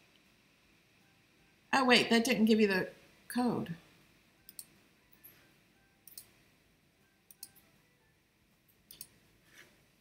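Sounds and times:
faint sharp clicks: 0:08.9 - 0:09.2.

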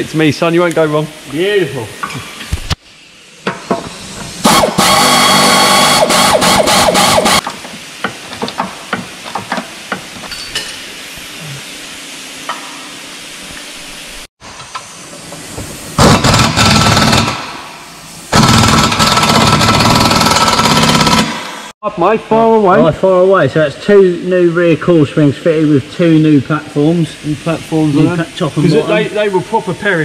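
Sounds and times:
pneumatic air wrench bursts: 0:03.8 - 0:07.5, 0:16.0 - 0:21.7.

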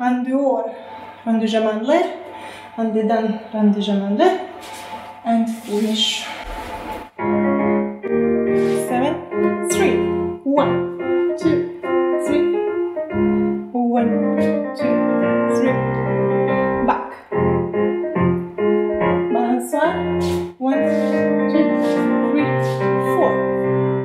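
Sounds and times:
piano melody over chords: 0:06.3 - 0:24.0.

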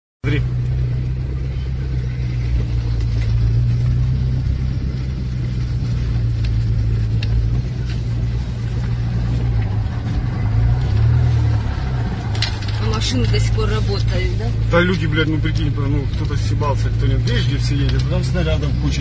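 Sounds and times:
car engine and road drone: 0:00.2 - 0:19.0.

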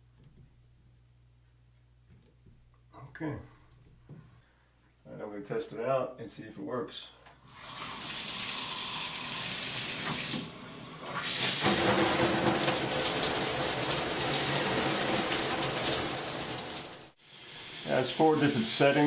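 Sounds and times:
shower spraying on tub walls: 0:07.5 - 0:10.5, 0:11.1 - 0:19.0
water running: 0:07.5 - 0:19.0.

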